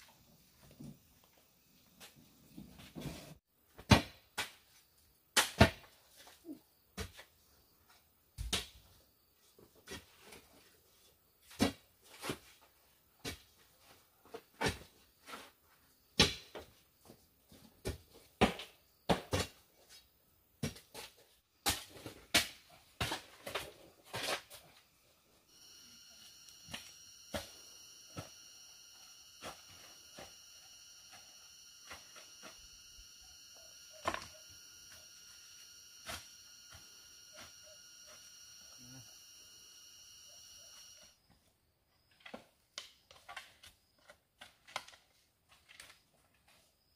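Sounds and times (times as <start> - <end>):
forest insects buzzing: 24.9 - 41.1.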